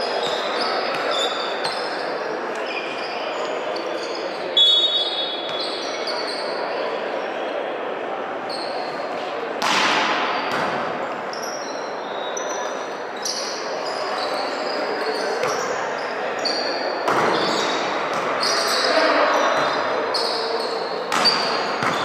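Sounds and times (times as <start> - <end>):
sneaker squeaks on court: 0.0 - 6.6, 10.2 - 22.0
crowd chatter and shouts: 0.0 - 22.0
volleyball hits: 9.6 - 11.0, 17.0 - 18.4, 21.1 - 22.0.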